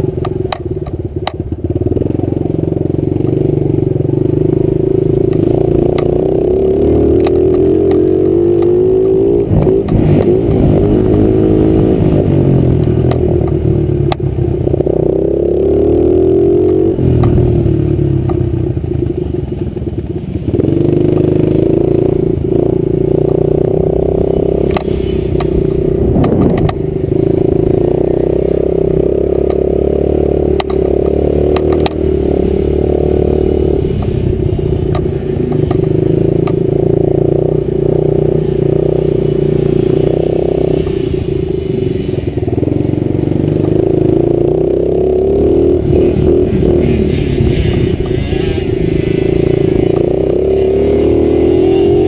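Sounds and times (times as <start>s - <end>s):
dirt bike engine revving high: 1.8s - 52.0s
bike clattering over bumps: 30.5s - 32.6s.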